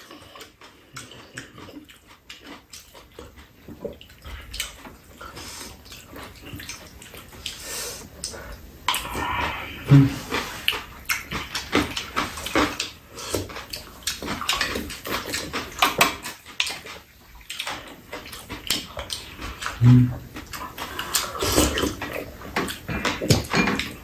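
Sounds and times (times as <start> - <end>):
wet chewing and slurping: 0.0 - 24.0
person humming mm: 8.9 - 10.4, 19.8 - 20.3.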